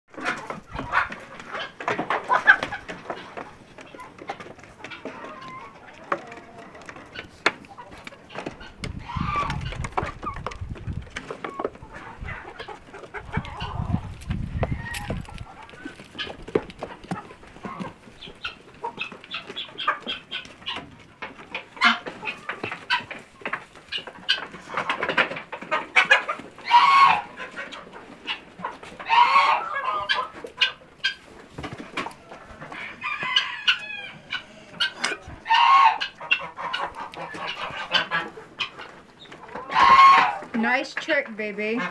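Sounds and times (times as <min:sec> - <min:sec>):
chickens clucking: 0:00.1 - 0:41.9
rooster crowing: 0:32.8 - 0:34.6.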